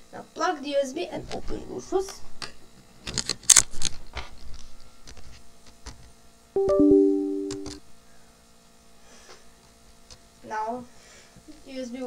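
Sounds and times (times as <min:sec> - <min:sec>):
electronic chime: 0:06.6 - 0:07.8.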